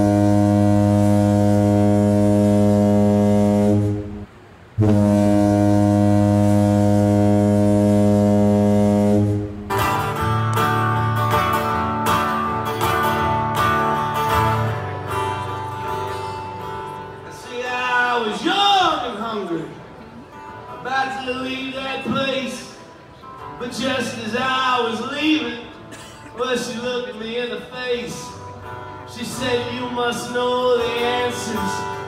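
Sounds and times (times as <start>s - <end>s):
ship's horn blast: 0.0s - 18.3s
electric guitar strumming chords: 0.0s - 18.4s, 19.6s - 32.0s.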